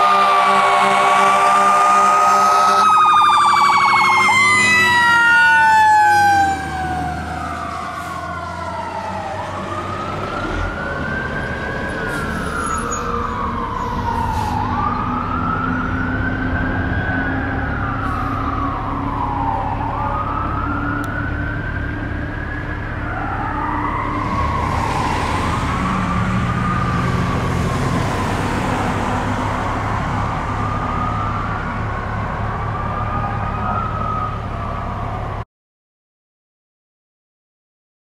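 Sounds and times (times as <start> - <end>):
fire engine horn blast: 0.0 - 6.8
falling siren tone: 0.0 - 35.4
siren warble: 0.0 - 35.4
wail siren: 0.0 - 35.4.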